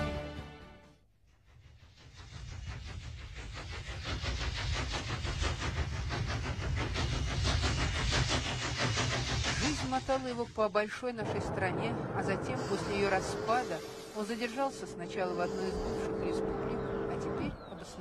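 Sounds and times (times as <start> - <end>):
freight train clattering past: 3.6 - 18.0.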